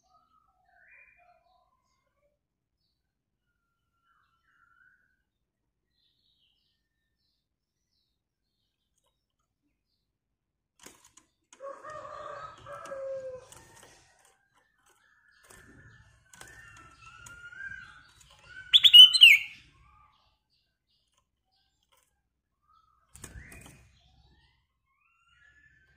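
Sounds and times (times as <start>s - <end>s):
clicks in cage: 10.8s - 18.7s, 21.0s - 22.2s
bird whistled calls: 18.6s - 19.6s.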